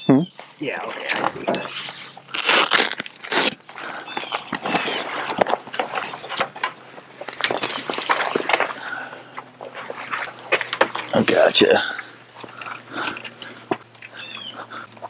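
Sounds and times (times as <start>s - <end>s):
velcro straps ripping: 1.8s - 3.7s.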